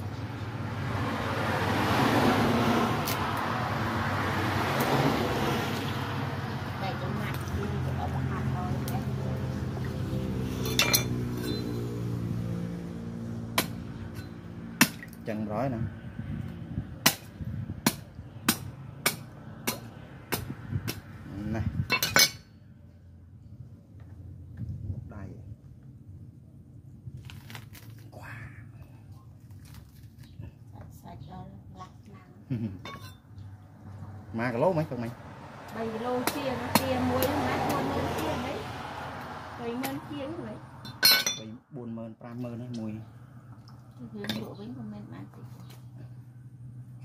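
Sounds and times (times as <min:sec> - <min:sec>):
road traffic rushing past: 0:00.0 - 0:24.5, 0:31.0 - 0:47.0
low engine hum: 0:00.0 - 0:27.2, 0:41.6 - 0:47.0.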